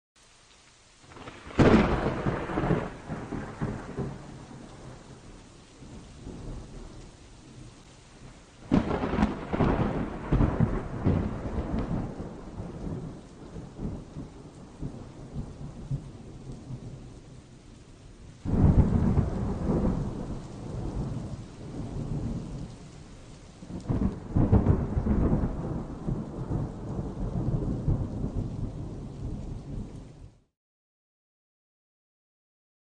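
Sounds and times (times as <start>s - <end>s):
steady rain: 0.2s - 30.5s
thunderclaps rolling into rumble: 1.1s - 7.7s, 8.6s - 17.0s, 18.4s - 22.8s, 23.7s - 30.3s.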